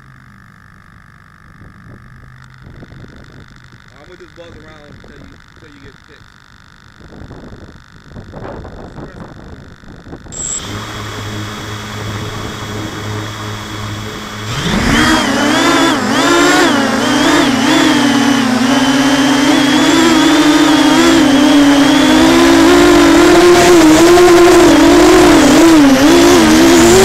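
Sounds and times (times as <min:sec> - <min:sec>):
low steady hum: 0:00.0 - 0:26.0
drone motors buzzing whine: 0:00.0 - 0:27.0
short high beep: 0:10.3 - 0:10.8.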